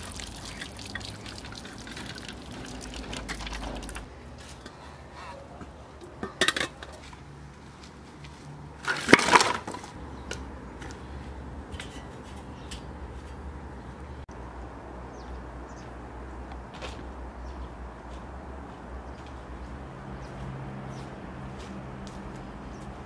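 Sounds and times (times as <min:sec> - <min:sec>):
metal colander clanking on basin: 0:06.2 - 0:07.0.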